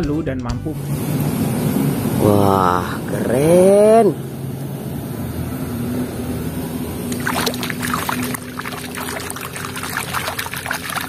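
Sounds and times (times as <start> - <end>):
steady low hum: 0.6 - 11.0
toy splashing in water: 7.1 - 11.0.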